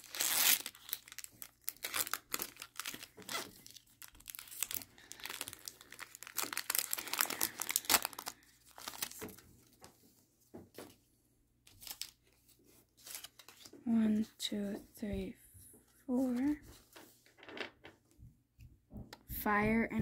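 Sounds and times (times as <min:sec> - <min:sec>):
foil wrapper crinkling and tearing: 0:00.0 - 0:09.5, 0:11.7 - 0:12.2
cards rustling: 0:00.0 - 0:10.2, 0:11.7 - 0:14.7, 0:16.1 - 0:18.0.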